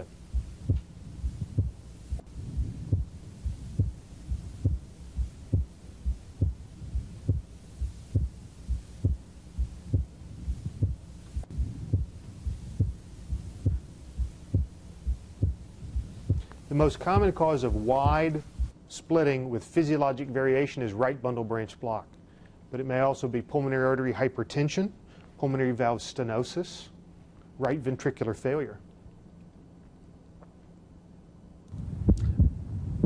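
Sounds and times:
heartbeat through stethoscope: 0.0 - 18.8, 31.8 - 33.0
low hum: 0.0 - 18.9, 29.1 - 33.0.

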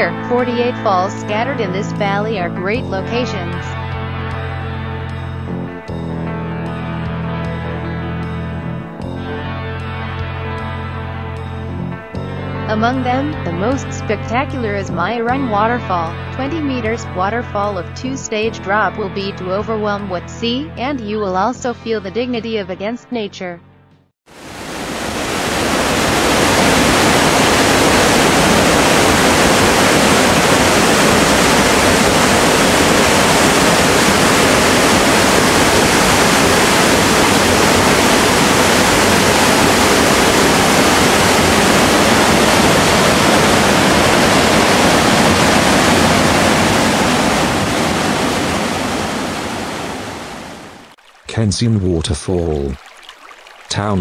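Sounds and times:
waterfall rushing: 24.3 - 54.0.

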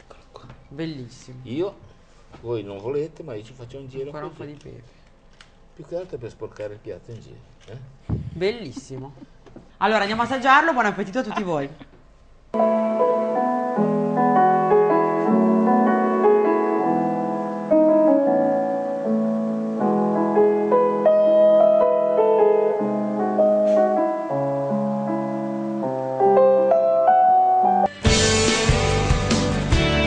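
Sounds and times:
piano music: 12.6 - 30.0.

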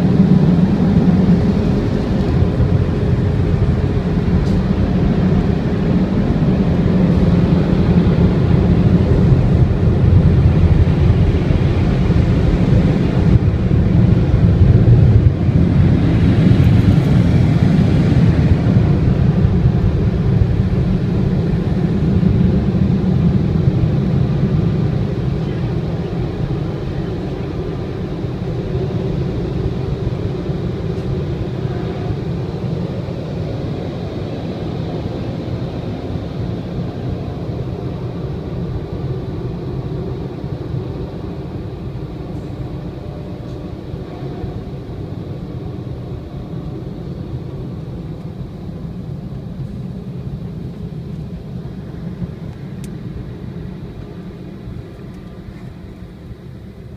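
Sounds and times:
car wash dryer rushing: 0.0 - 56.9.

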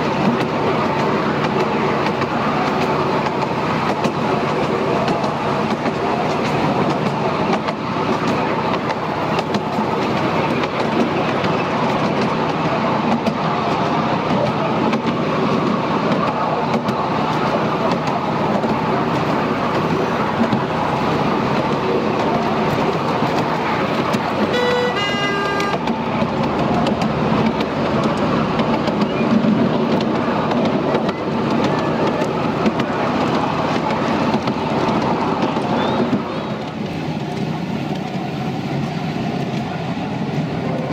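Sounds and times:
train wheels on rails: 0.0 - 40.9
locomotive toot: 24.3 - 26.2.

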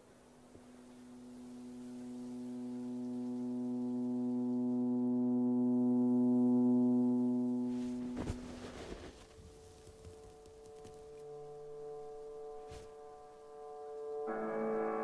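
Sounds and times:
sustained drone note: 0.6 - 8.8.

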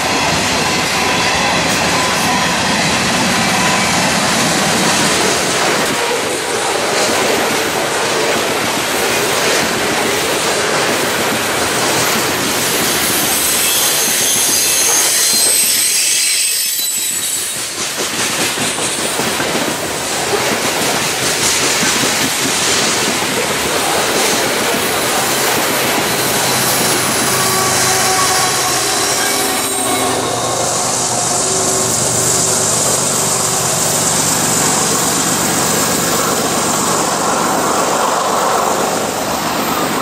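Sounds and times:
train wheels clattering on rails: 0.0 - 16.0, 16.8 - 40.0
high wheel squeal: 12.7 - 17.8, 24.6 - 36.3
diesel locomotive engine hum: 19.1 - 40.0.

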